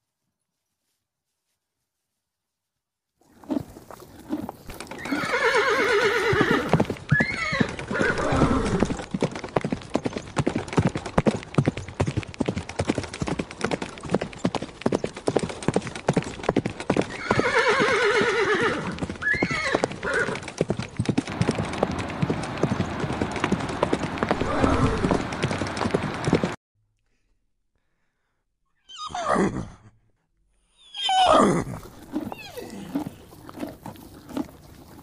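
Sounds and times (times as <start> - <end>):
hooves clip-clopping: 3.2 - 26.6, 31.6 - 35.0
horse whinnying: 3.4 - 9.0, 17.1 - 20.4, 24.4 - 25.2, 28.8 - 29.8, 30.8 - 35.0.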